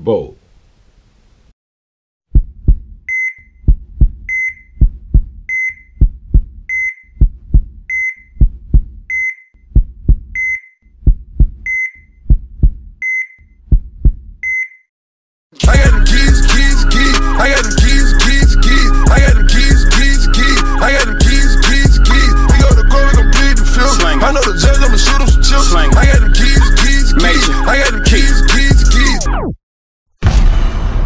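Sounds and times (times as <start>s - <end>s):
heartbeat thumps: 2.3s - 14.5s
short electronic beeps: 9.1s - 9.5s, 10.4s - 10.8s, 14.4s - 14.9s
music: 15.6s - 29.6s.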